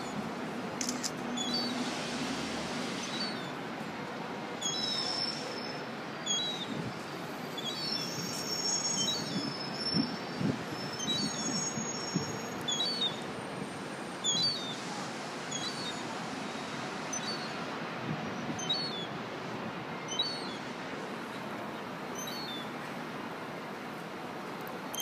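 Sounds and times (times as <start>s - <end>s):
city traffic noise: 0.0s - 25.0s.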